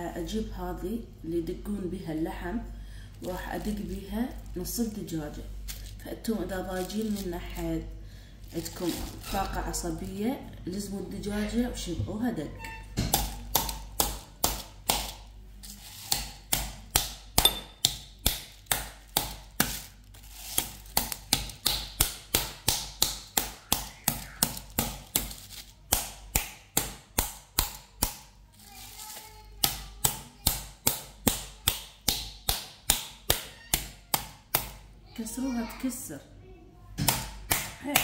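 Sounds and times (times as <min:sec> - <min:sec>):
meat mallet pounding raw chicken: 0:13.0 - 0:15.2, 0:16.1 - 0:19.8, 0:20.6 - 0:28.2.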